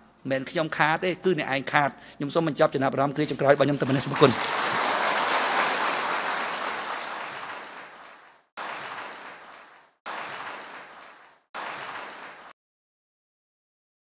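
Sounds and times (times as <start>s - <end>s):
audience applauding: 3.7s - 12.6s.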